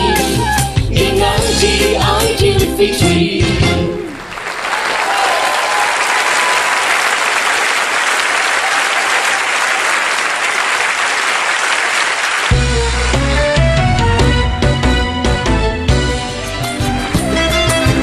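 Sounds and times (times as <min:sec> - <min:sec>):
song ending: 0:00.0 - 0:04.2
studio audience applauding: 0:04.1 - 0:12.8.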